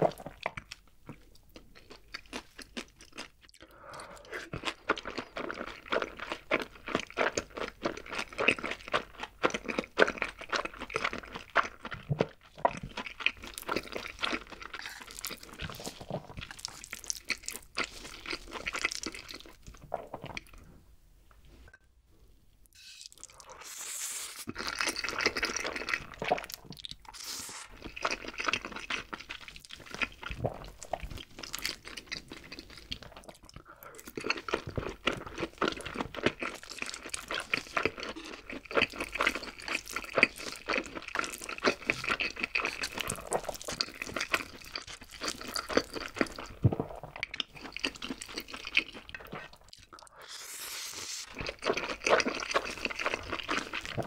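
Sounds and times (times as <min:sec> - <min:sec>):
wet chewing with mouth clicks: 0:00.0 - 0:20.6, 0:24.3 - 0:54.0
slurping noodles: 0:22.8 - 0:28.6, 0:47.6 - 0:54.0.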